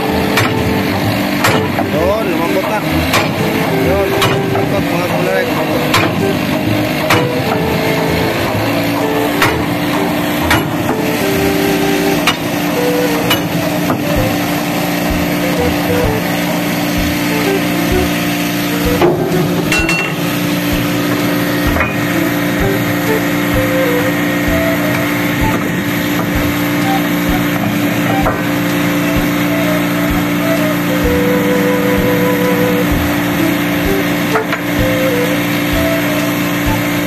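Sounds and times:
ship machinery humming: 0.0s - 37.0s
sharp knocks: 0.4s - 2.0s, 3.0s - 3.6s, 9.4s - 11.1s, 12.2s - 18.2s, 18.8s - 31.2s.

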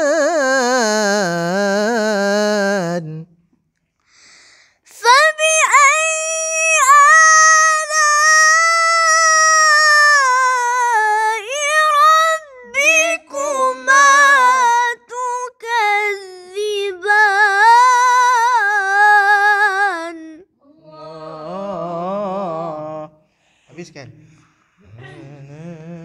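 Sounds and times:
high voice chanting: 19.3s - 23.2s, 24.8s - 26.0s
lower voice chanting: 20.7s - 23.2s, 24.8s - 26.0s.

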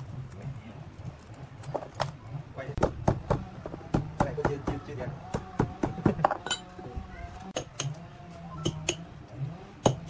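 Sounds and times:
hammer striking metal: 7.6s - 8.0s, 8.6s - 9.1s.

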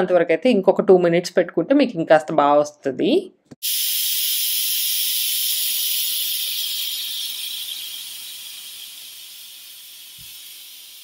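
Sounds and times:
steam hissing from pressure valve: 3.6s - 11.0s.

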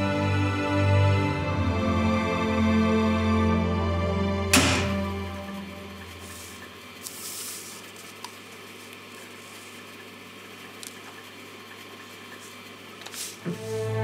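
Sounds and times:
paper rustling: 6.2s - 9.8s.

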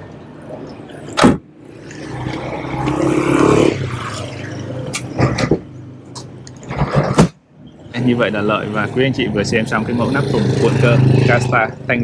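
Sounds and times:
tonneau cover knocks and clunks: 5.0s - 7.4s.

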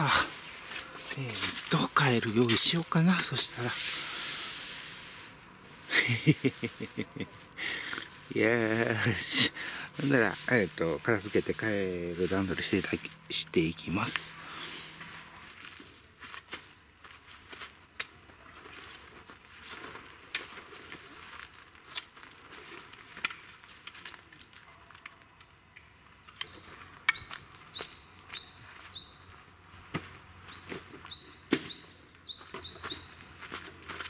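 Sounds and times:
tent poles clicking and knocking: 19.4s - 21.1s, 21.7s - 27.4s
small bird chirping: 25.6s - 29.3s, 30.5s - 33.4s.

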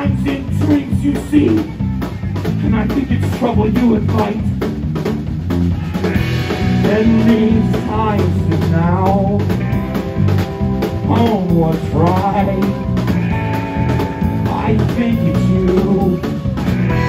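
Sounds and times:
person singing lead vocal: 0.0s - 1.7s, 6.2s - 9.8s, 11.0s - 13.6s, 14.2s - 17.0s
bass guitar: 0.0s - 17.0s
drum kit: 0.0s - 17.0s
electric guitar: 0.0s - 17.0s.

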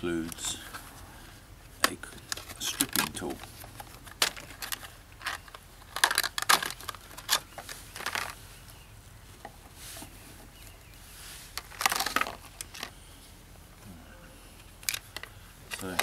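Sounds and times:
plastic packaging crackling: 2.2s - 8.4s, 11.5s - 12.9s.

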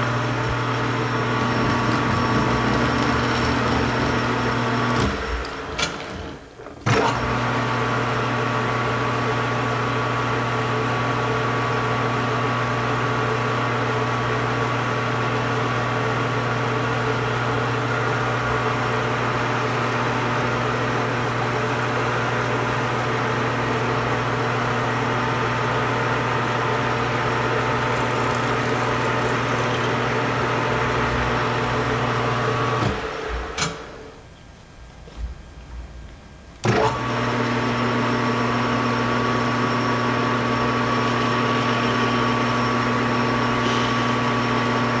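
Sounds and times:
metal lathe humming: 0.0s - 5.5s, 24.1s - 32.8s, 40.7s - 44.9s.

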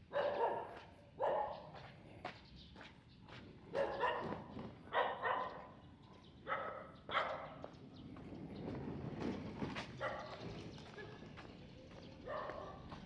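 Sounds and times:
dog barking: 0.0s - 1.8s, 3.7s - 5.8s, 6.4s - 7.6s, 10.0s - 10.4s, 12.2s - 13.0s.

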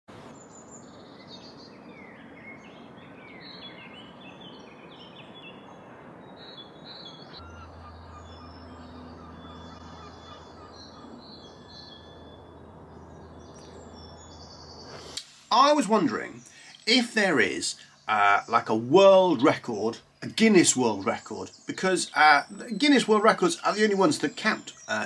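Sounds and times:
steady outdoor hiss: 0.1s - 25.0s
songbirds chirping and whistling: 0.2s - 25.0s
low steady hum: 7.4s - 25.0s.

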